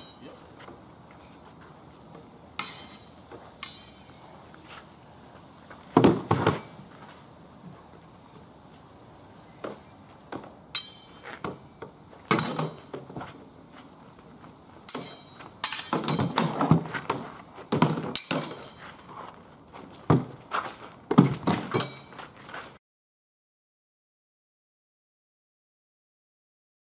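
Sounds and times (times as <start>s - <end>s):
shields clashing: 2.6s - 4.2s, 5.9s - 6.8s, 9.6s - 11.6s, 12.2s - 13.3s, 14.9s - 19.0s, 21.1s - 22.3s
metallic clinks: 2.6s - 4.3s, 10.7s - 11.4s, 14.8s - 16.5s, 21.7s - 22.2s
swords striking wooden shields: 6.0s - 6.7s, 10.3s - 11.6s, 12.3s - 12.9s, 14.9s - 18.8s, 21.1s - 22.2s.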